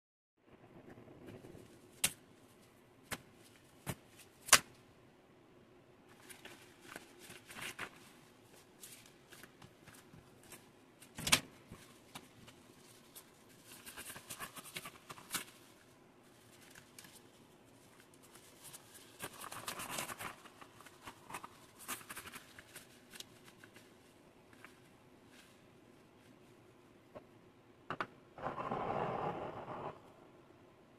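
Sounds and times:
rubber gloves rustling: 0:01.4 - 0:04.8, 0:06.1 - 0:27.1.

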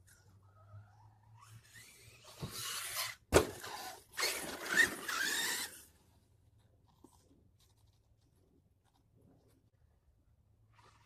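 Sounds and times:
toy truck motor and tyres hissing: 0:00.6 - 0:06.0.

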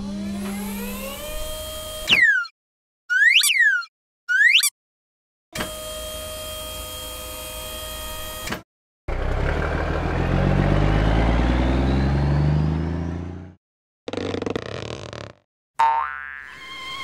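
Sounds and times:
truck engine pulling away: 0:09.1 - 0:13.6.

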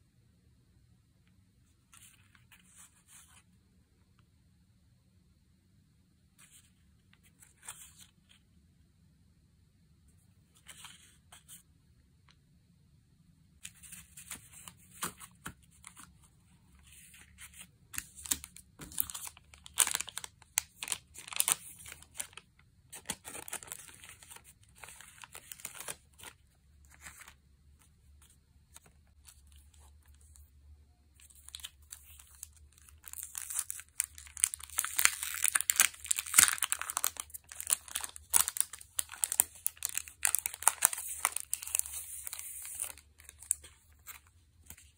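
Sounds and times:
plastic packaging crinkling: 0:17.3 - 0:27.4, 0:31.2 - 0:44.9.

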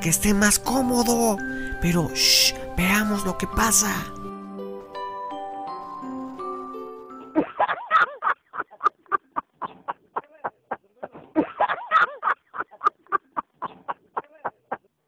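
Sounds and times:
men laughing hard: 0:07.3 - 0:10.8, 0:11.4 - 0:14.8.

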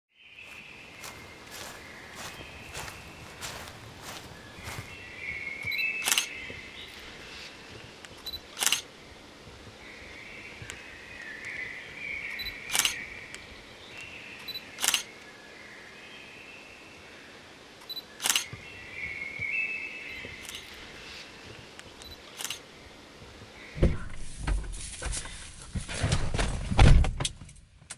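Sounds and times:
camera shutter firing: 0:06.0 - 0:06.3, 0:08.6 - 0:08.8, 0:12.7 - 0:13.0, 0:14.8 - 0:15.1, 0:18.2 - 0:18.5.

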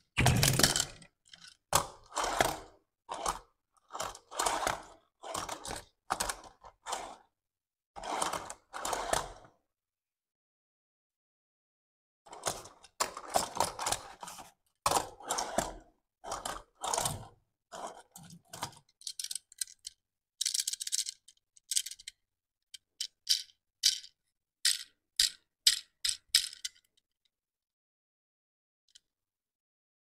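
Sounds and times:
toy car handling rustles: 0:04.0 - 0:07.3, 0:17.8 - 0:27.1.

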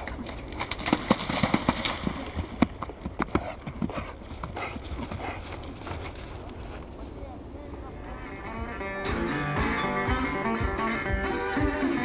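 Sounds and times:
hooves splashing in water: 0:00.0 - 0:06.8
horse hooves cantering: 0:00.0 - 0:07.0.

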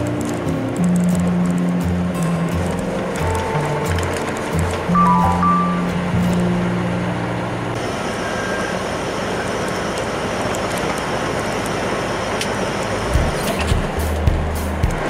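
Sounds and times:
truck engine running: 0:00.0 - 0:15.0
tyre noise on road: 0:00.0 - 0:15.0.

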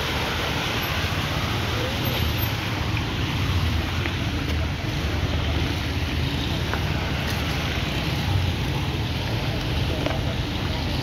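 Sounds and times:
water rushing: 0:00.0 - 0:11.0.

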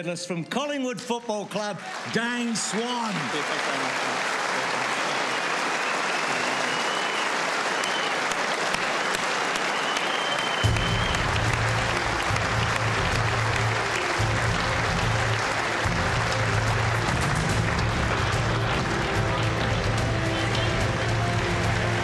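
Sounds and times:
audience applauding: 0:01.5 - 0:22.0
music with heavy bass: 0:10.7 - 0:22.0.

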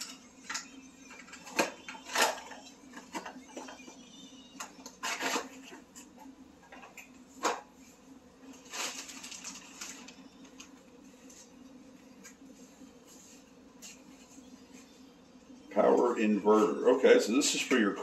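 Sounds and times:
plastic packaging rustling: 0:08.4 - 0:11.5.

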